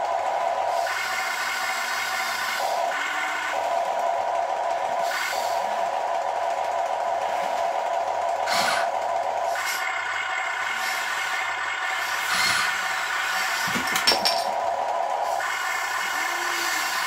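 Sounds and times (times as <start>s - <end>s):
hydraulic pump whining: 10.6s - 14.5s.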